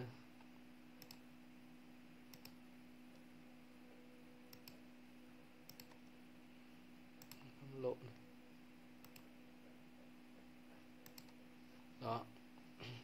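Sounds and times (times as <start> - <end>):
low steady hum: 0.0 - 13.0
computer mouse clicks: 1.0 - 1.2, 2.3 - 3.2, 4.5 - 4.8, 5.6 - 6.1, 7.2 - 7.5, 9.0 - 9.3, 11.0 - 11.4.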